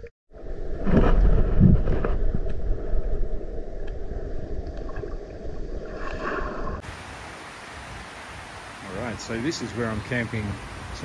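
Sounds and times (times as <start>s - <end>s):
muffled underwater rumble and sloshing: 0.3s - 6.8s.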